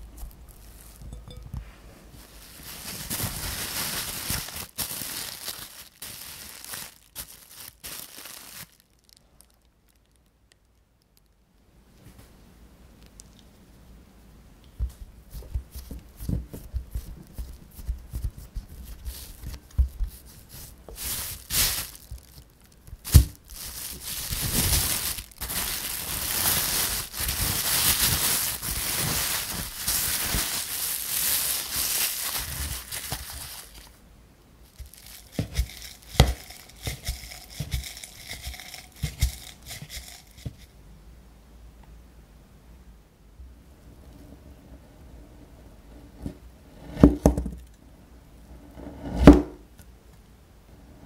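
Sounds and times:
cling film crinkling: 0:00.0 - 0:01.2, 0:02.2 - 0:11.4, 0:16.9 - 0:34.0, 0:34.7 - 0:40.5
hands patting dough: 0:14.8 - 0:22.2.

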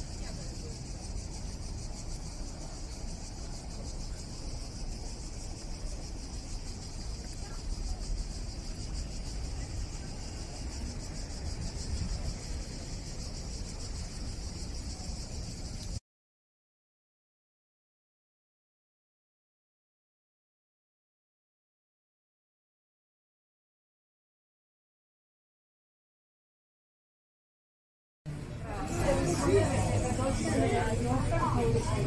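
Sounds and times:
cicadas buzzing: 0:00.0 - 0:16.0, 0:28.3 - 0:32.0.

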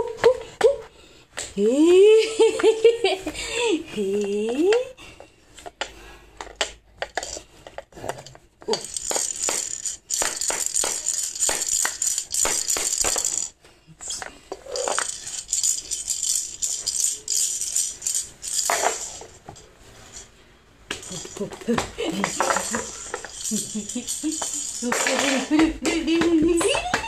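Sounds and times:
rattling and shaking: 0:08.7 - 0:27.0.

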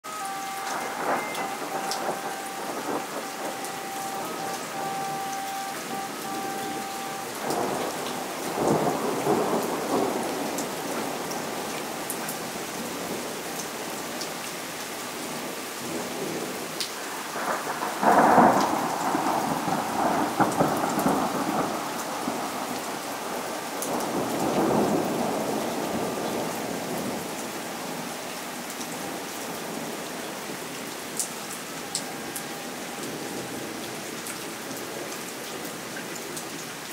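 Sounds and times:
heavy rain falling: 0:00.0 - 0:36.9
thunder rumbling: 0:00.1 - 0:11.7, 0:17.1 - 0:27.3.

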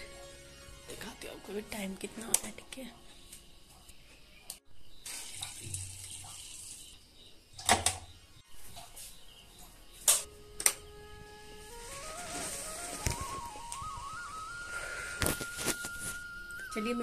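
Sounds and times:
background music: 0:00.0 - 0:03.5, 0:10.1 - 0:17.0.

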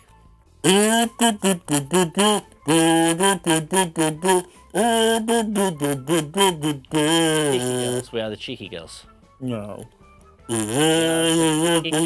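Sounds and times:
kazoo buzzing a tune: 0:00.6 - 0:08.0, 0:10.4 - 0:12.0.

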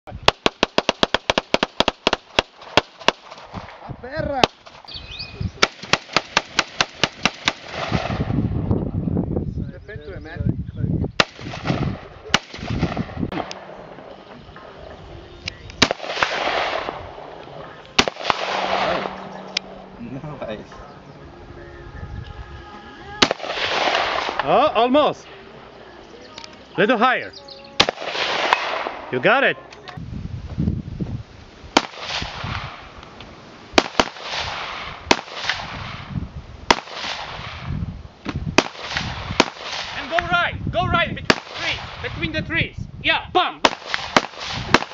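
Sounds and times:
rifle shots with echo: 0:00.2 - 0:03.6, 0:05.6 - 0:08.3, 0:11.2 - 0:14.8, 0:15.8 - 0:19.8, 0:23.2 - 0:24.6, 0:27.8 - 0:29.2, 0:31.8 - 0:32.9, 0:33.8 - 0:36.1, 0:36.7 - 0:37.7, 0:38.6 - 0:40.1, 0:41.3 - 0:42.1, 0:43.6 - 0:44.9
faint gunshot cracks: 0:11.2 - 0:13.7, 0:15.8 - 0:17.2, 0:18.0 - 0:19.3, 0:23.2 - 0:24.6, 0:27.8 - 0:29.1, 0:31.8 - 0:32.8, 0:33.8 - 0:36.1, 0:36.7 - 0:37.7.

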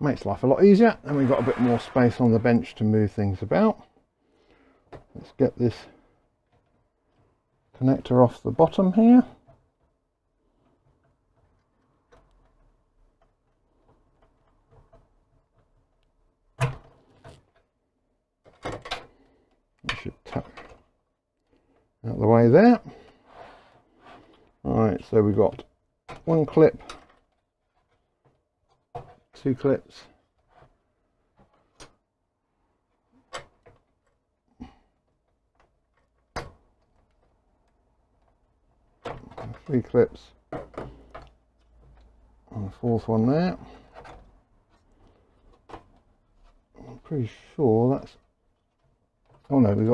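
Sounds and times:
rustling: 0:00.9 - 0:02.8.

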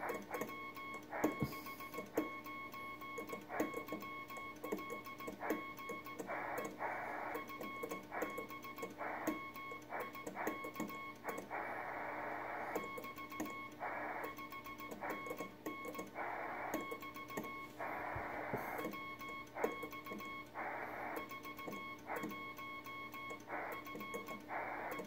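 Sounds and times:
radio receiver hiss: 0:17.8 - 0:18.8.

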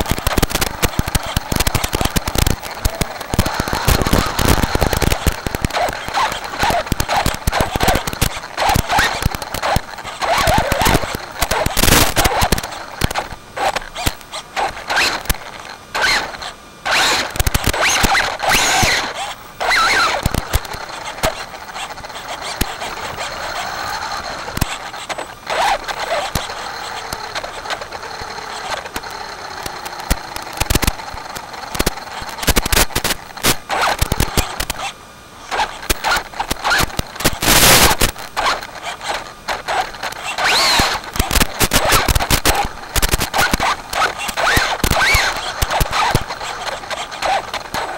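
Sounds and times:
sharp clicks and crackles: 0:00.0 - 0:47.9
electric motor whining: 0:35.5 - 0:47.9.

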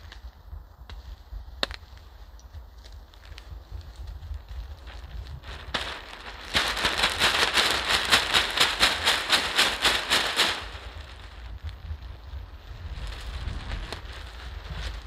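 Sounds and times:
wind buffeting microphone: 0:00.0 - 0:15.0
plastic tarp crinkling: 0:04.4 - 0:15.0.

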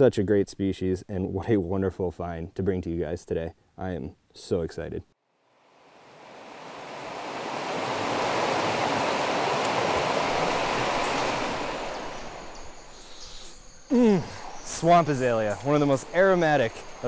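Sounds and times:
water rushing over rocks: 0:06.2 - 0:12.8.

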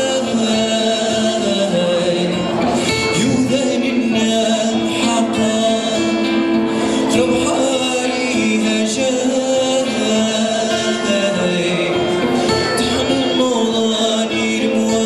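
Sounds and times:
acoustic guitar strumming: 0:00.0 - 0:15.0
man singing: 0:00.0 - 0:15.0.

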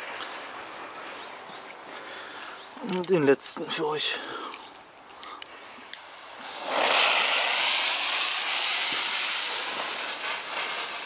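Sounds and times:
fuse hissing: 0:05.8 - 0:11.0
firecracker bang: 0:06.1 - 0:11.0.

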